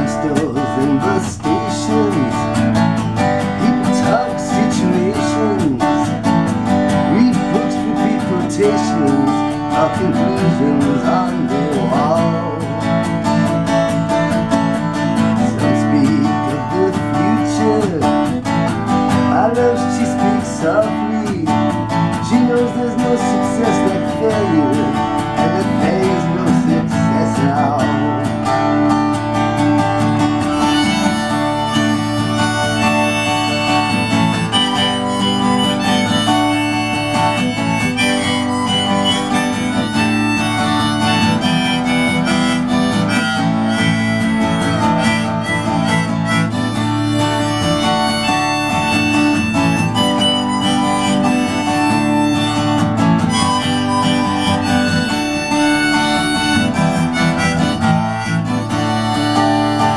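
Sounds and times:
harmonica solo: 0:00.0 - 0:59.9
strummed acoustic guitar: 0:00.0 - 0:59.9.

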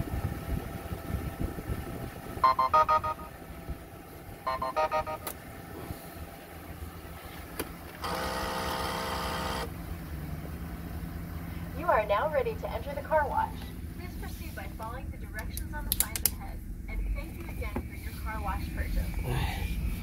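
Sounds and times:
van engine idling low: 0:00.0 - 0:20.0
card terminal beeping: 0:02.4 - 0:03.3, 0:04.5 - 0:05.4, 0:08.0 - 0:09.7.

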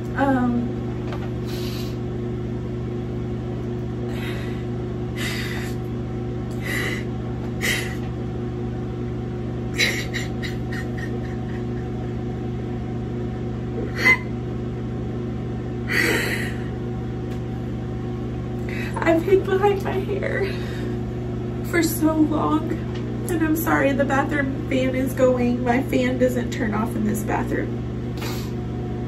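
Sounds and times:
exhaust fan humming: 0:00.0 - 0:29.0
woman crying: 0:09.8 - 0:12.2, 0:13.9 - 0:14.3, 0:15.9 - 0:16.7.

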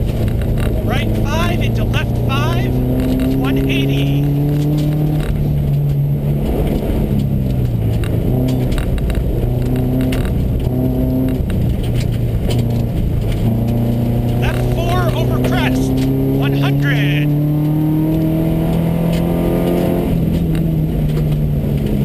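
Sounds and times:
rally car engine revving: 0:00.0 - 0:22.0
tyres rushing on gravel: 0:00.8 - 0:04.3, 0:14.3 - 0:17.3.

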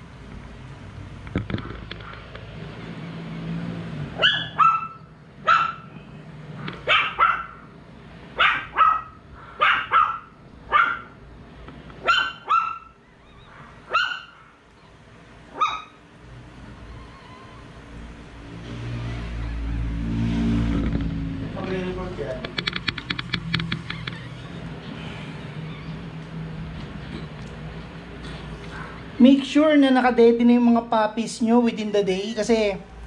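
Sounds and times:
dog barking: 0:04.2 - 0:06.0, 0:06.8 - 0:07.7, 0:08.4 - 0:11.2, 0:12.0 - 0:14.6, 0:15.5 - 0:16.0.

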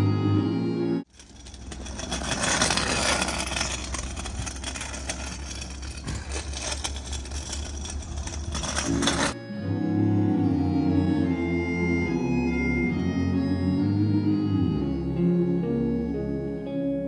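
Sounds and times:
light clicks and scrapes: 0:01.2 - 0:09.4.

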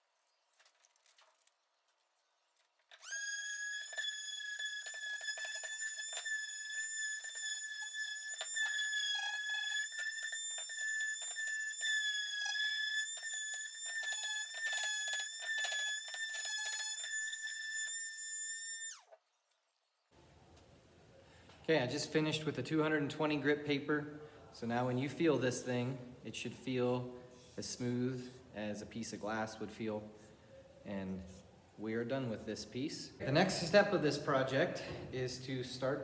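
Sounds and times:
electric palm sander whining: 0:03.0 - 0:19.1
sandpaper scratching wood: 0:03.2 - 0:17.3.

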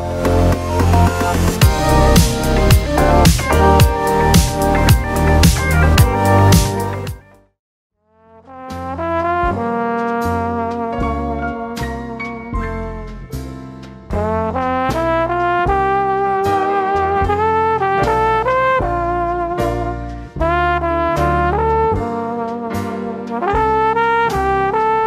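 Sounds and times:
jazzy brass tune: 0:00.0 - 0:07.3, 0:08.2 - 0:25.0.

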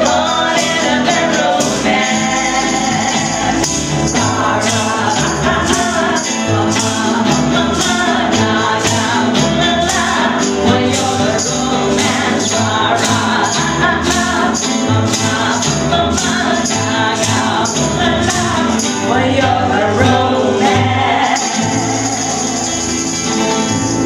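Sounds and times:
voices singing along: 0:00.0 - 0:23.8
guitars playing: 0:00.0 - 0:24.0
tambourine jingling: 0:00.0 - 0:24.0
upright bass: 0:00.0 - 0:24.0.

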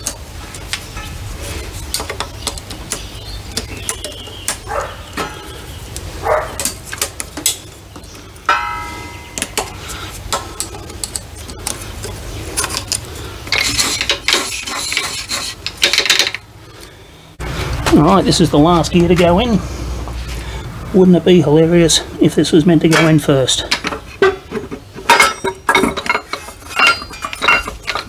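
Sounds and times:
scraping rustle: 0:00.0 - 0:16.2, 0:23.0 - 0:28.0
steel parts clicking and clinking: 0:08.4 - 0:16.5, 0:22.8 - 0:28.0.

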